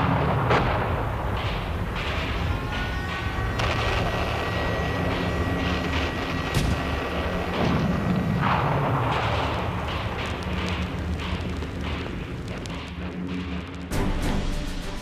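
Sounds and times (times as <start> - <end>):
artillery fire and explosions: 0.0 - 15.0
continuous rumble: 0.0 - 15.0.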